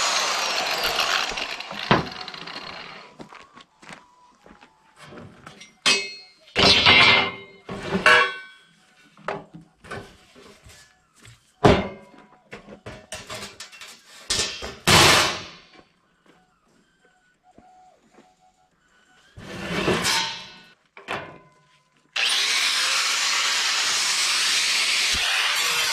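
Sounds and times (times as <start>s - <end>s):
metal clattering and ringing: 5.5s - 8.7s.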